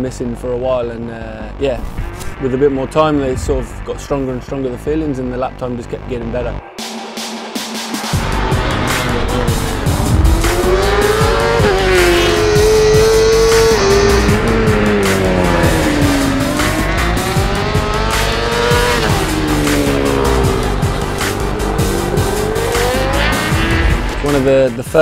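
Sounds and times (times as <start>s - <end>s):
music with steady beat: 6.6s - 25.0s
motorcycle engine revving: 8.2s - 24.5s.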